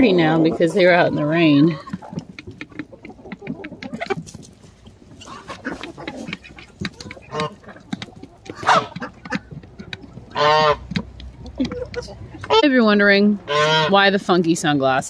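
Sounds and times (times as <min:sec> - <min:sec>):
poultry calls: 0:00.0 - 0:14.0.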